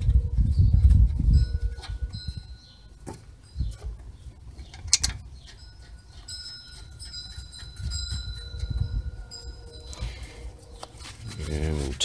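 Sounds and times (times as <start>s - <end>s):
thin steady high tones: 5.5s - 11.3s.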